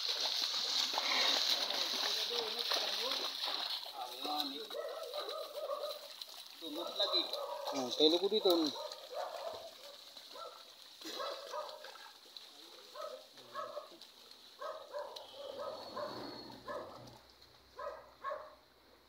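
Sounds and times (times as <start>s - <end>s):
short animal calls: 15.2s - 17.1s.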